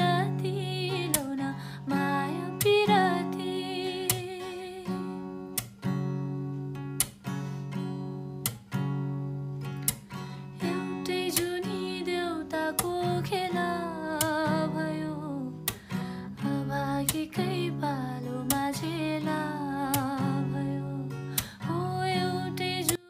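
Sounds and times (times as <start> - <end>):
strummed guitar chords: 0.0 - 23.0.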